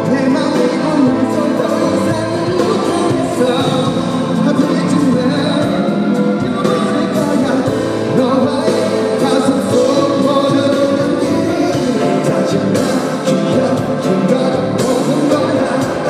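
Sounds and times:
man singing with live band: 0.0 - 16.0.

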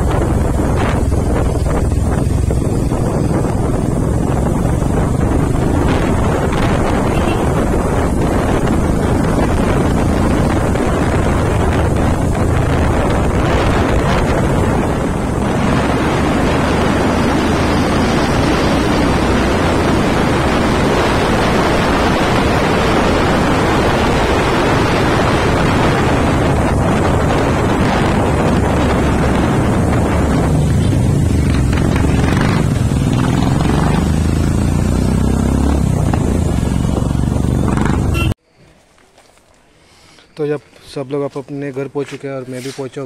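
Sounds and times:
motorcycle engine running: 0.0 - 21.4, 25.7 - 38.4
wind buffeting microphone: 0.0 - 38.4.

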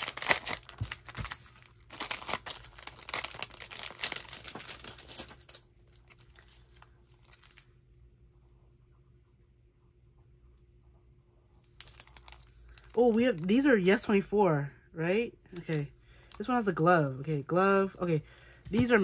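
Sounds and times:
plastic wrappers crinkling: 0.0 - 7.7, 11.7 - 14.2, 15.5 - 19.0.

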